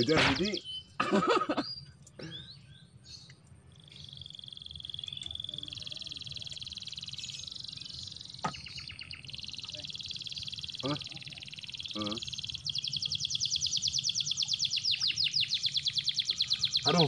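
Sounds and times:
animal trilling: 9.5s - 12.5s.

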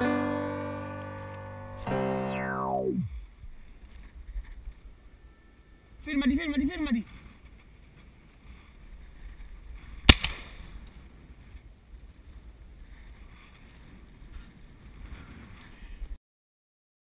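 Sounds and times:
shotgun shot: 10.1s - 10.6s.

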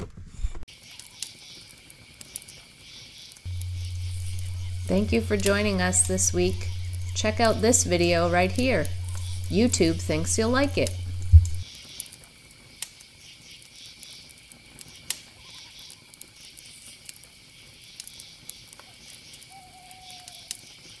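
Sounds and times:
campfire crackling and popping: 0.7s - 21.0s
insects chirping: 1.2s - 21.0s
low hum: 3.5s - 11.6s.

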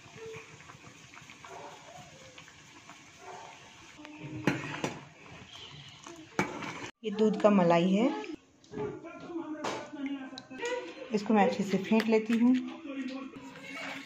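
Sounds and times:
ladle stirring thick soup: 0.1s - 8.3s.

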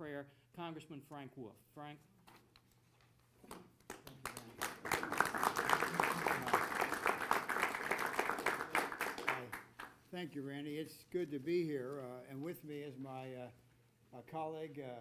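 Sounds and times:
audience applauding: 3.9s - 10.0s.

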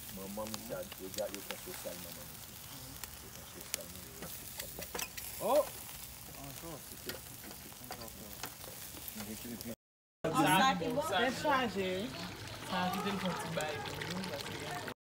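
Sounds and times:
fat crackling and popping: 0.0s - 9.8s, 10.6s - 15.0s
chicken sizzling on a grill: 0.0s - 15.0s.

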